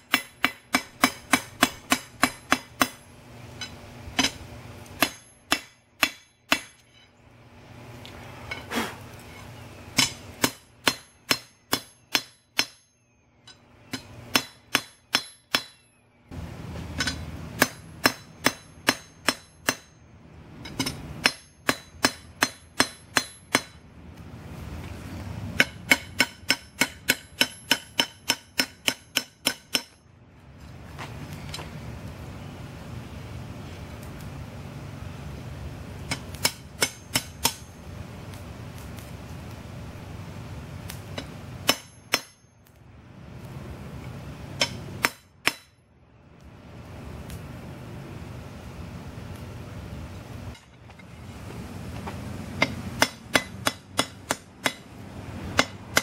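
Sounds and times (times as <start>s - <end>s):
hammer striking steel on anvil: 0.0s - 7.2s, 10.0s - 16.0s, 16.9s - 20.0s, 20.6s - 23.8s, 25.6s - 30.0s, 36.1s - 37.8s, 41.1s - 42.6s, 44.6s - 45.8s, 52.6s - 54.9s, 55.5s - 56.0s.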